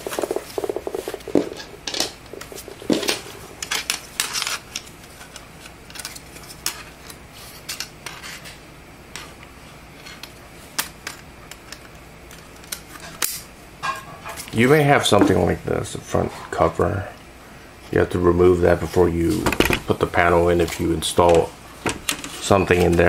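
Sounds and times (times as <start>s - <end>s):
plastic and metal parts clattering: 0.0s - 6.9s, 19.3s - 20.0s.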